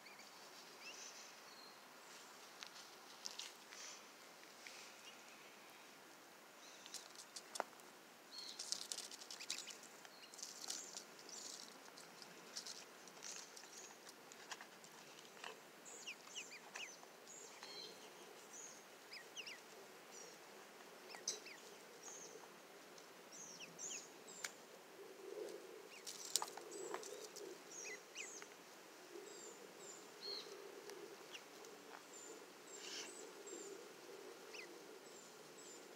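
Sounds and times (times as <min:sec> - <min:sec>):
rustling in grass: 0:00.0 - 0:05.9
ducklings peeping: 0:08.5 - 0:10.8, 0:15.4 - 0:19.7, 0:21.1 - 0:21.7, 0:27.0 - 0:28.5.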